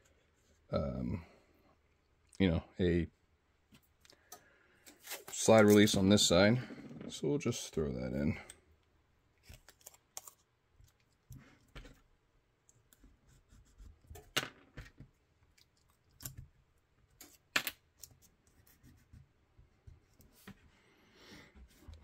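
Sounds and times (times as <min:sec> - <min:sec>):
hands handling tape: 0:09.4 - 0:13.2.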